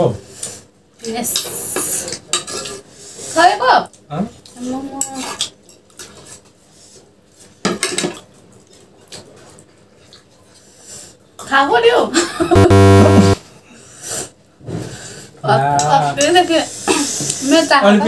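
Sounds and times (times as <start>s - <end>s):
cutlery clinking against a bowl: 1.4s - 2.8s, 7.6s - 8.3s.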